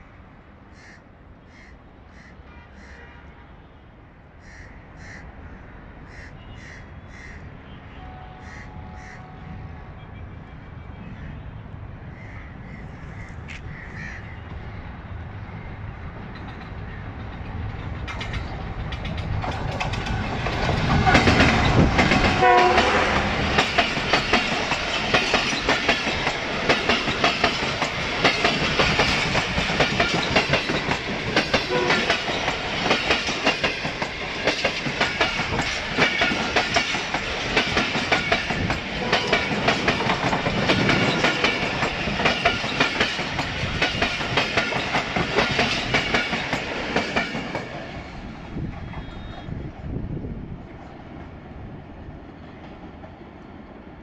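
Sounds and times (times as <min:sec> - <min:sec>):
diesel locomotive passing: 0:00.0 - 0:54.0
crows cawing: 0:00.7 - 0:03.0, 0:04.4 - 0:07.5, 0:08.4 - 0:09.3, 0:12.1 - 0:14.5
train wheels clattering over rail joints: 0:16.2 - 0:48.0.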